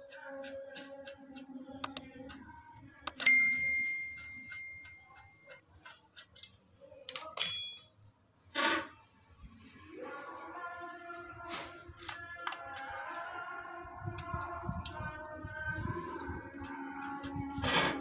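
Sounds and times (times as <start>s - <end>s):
screwdriver clinking on metal: 3.1s - 5.6s, 6.2s - 8.0s.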